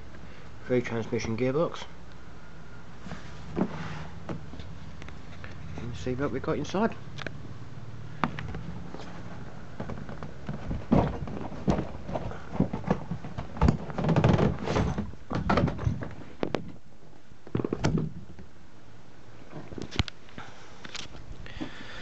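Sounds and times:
cardboard rustling: 8.8 - 16.3
cardboard box thumps and knocks: 9.8 - 16.6.

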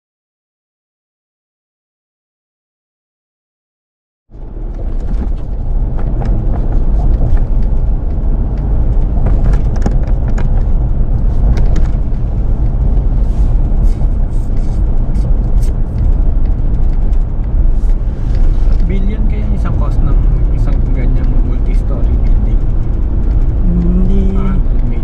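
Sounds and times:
engine and road rumble: 4.3 - 25.0.

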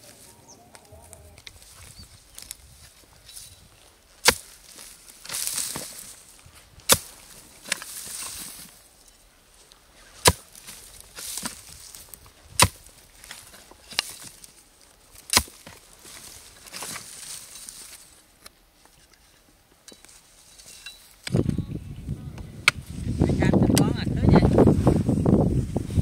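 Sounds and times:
dry grass and soil rustling: 0.0 - 26.0
hoe chopping into dry earth: 4.2 - 6.2, 6.8 - 8.7, 10.2 - 14.5, 15.2 - 17.5.

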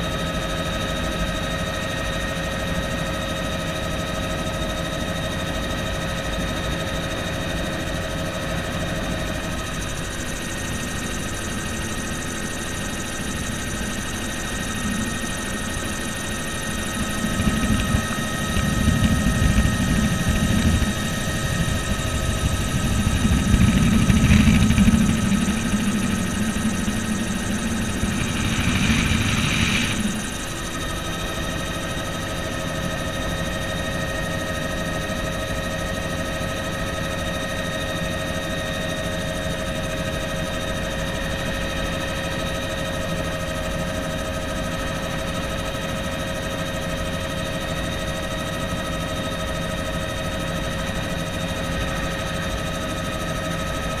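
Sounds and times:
helicopter engine and rotor drone: 0.0 - 54.0
high whining tones: 13.6 - 30.8.

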